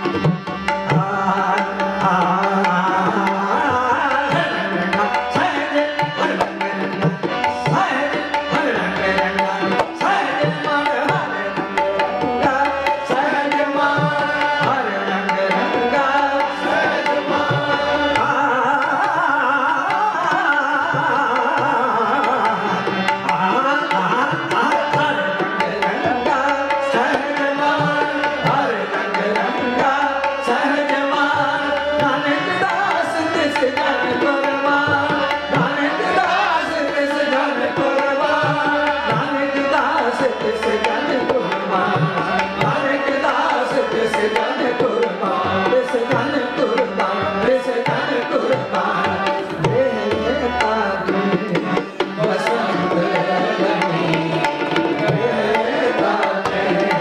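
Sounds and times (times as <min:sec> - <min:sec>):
tabla rhythm: 0:00.0 - 0:57.0
voices singing a hymn: 0:26.9 - 0:57.0.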